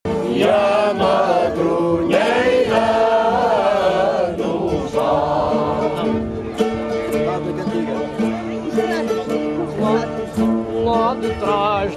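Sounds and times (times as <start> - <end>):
choir singing: 0.1 - 6.4.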